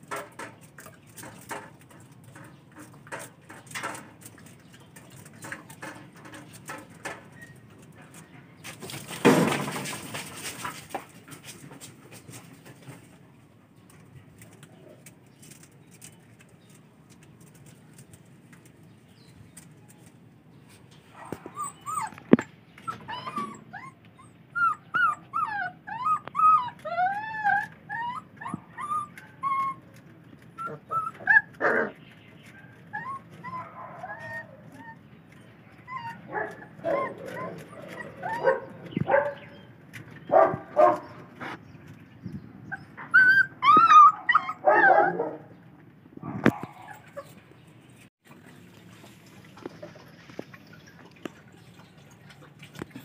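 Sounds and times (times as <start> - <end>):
puppies whimpering and yipping: 21.1 - 39.7, 42.6 - 45.4, 46.4 - 47.6
puppy yelps: 21.2 - 35.0, 35.8 - 39.4, 42.7 - 45.5.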